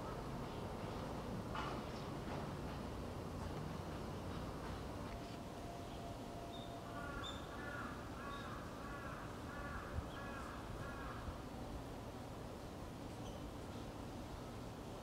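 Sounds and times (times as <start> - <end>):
outdoor background noise: 0.0 - 15.0
crow cawing: 6.9 - 11.3.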